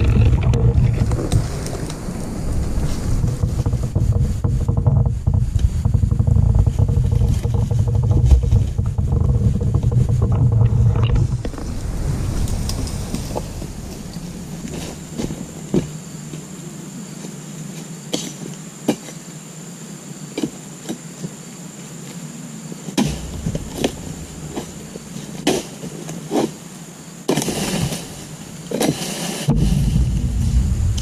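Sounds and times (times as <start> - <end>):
low rumble: 0.0 - 16.2, 23.0 - 25.5, 29.5 - 31.0
rustling noise: 0.0 - 16.5, 23.0 - 26.6, 27.3 - 31.0.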